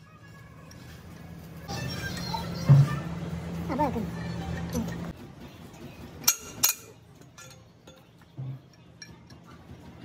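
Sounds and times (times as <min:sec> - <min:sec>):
metallic clinks: 0:06.2 - 0:09.6.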